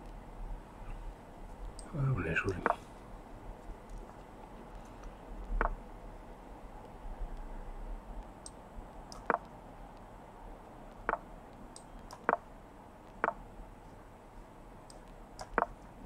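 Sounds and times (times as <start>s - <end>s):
mouse clicks: 4.7s - 5.8s, 8.2s - 10.1s, 10.9s - 13.4s, 14.8s - 15.9s.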